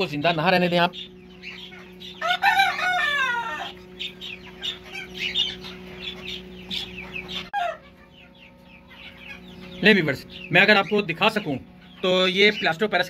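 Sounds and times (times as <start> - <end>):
high bird chirps: 0.0 - 13.0
steady low hum: 0.0 - 13.0
rooster crowing: 2.1 - 3.9, 7.5 - 8.0.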